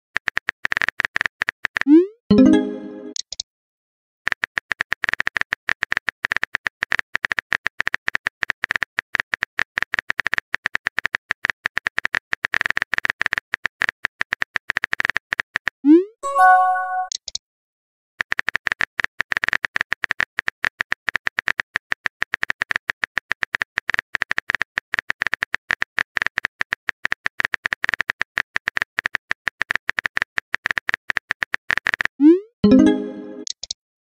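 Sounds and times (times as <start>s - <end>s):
short chime: 16.2s - 17.1s.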